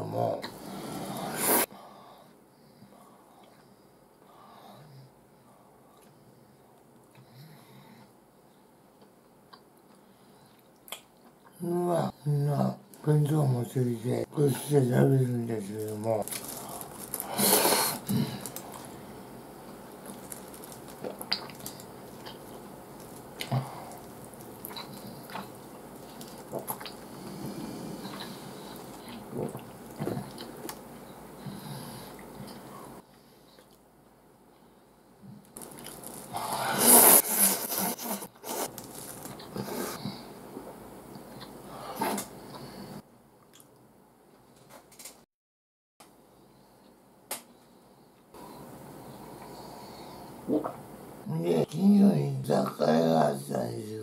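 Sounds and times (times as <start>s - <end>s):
person slurping noodles: 0.6s - 1.7s, 17.2s - 18.2s, 35.8s - 38.7s
wet chewing and smacks: 20.0s - 27.1s
noodles being slurped: 35.6s - 40.0s.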